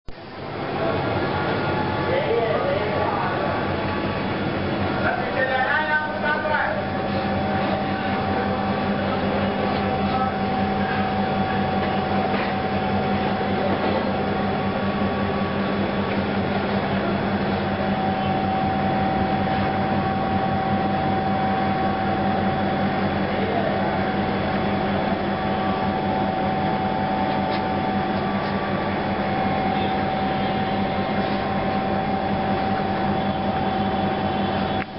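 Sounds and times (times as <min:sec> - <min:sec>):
steady mechanical hum: 0:00.1 - 0:34.9
faint constant whine: 0:00.2 - 0:34.9.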